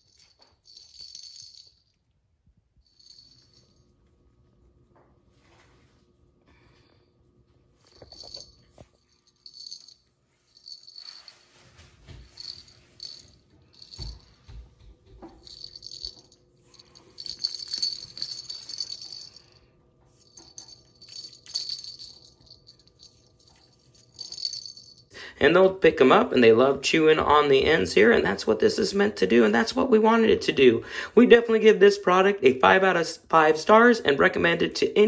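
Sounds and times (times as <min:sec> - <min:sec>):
wooden ball toy rattling: 0:00.0 - 0:01.7, 0:08.0 - 0:08.5, 0:12.4 - 0:14.3, 0:15.3 - 0:19.4, 0:20.2 - 0:25.0.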